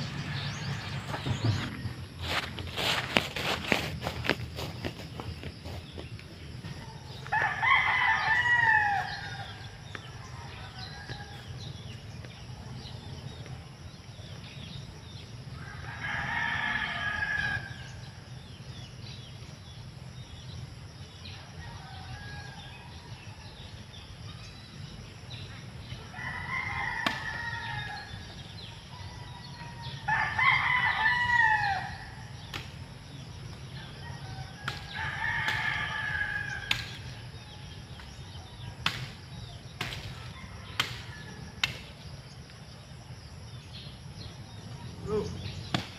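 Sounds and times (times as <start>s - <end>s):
rooster crowing: 6.8s - 11.7s, 15.6s - 18.2s, 26.0s - 32.4s, 33.7s - 37.8s, 40.2s - 41.6s.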